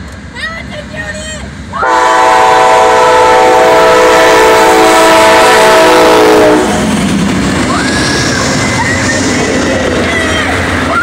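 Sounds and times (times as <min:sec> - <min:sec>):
train cars rumbling by: 0:00.0 - 0:11.0
locomotive air horn: 0:01.8 - 0:06.8.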